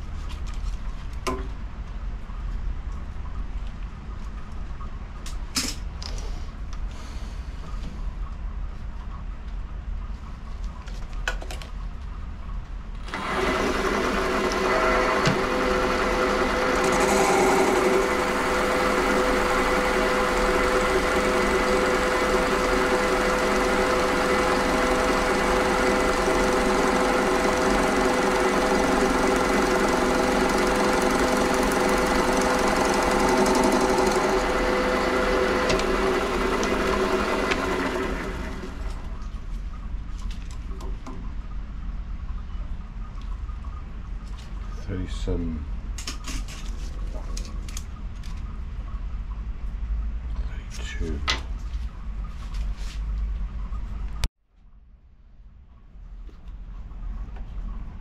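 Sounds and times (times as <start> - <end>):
bench lathe motor whining: 13.1 - 39.2.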